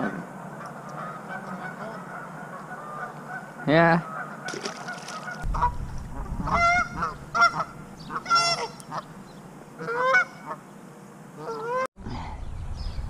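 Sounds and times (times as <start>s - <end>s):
goose honking: 0.7s - 9.2s, 9.8s - 10.6s, 11.4s - 11.9s.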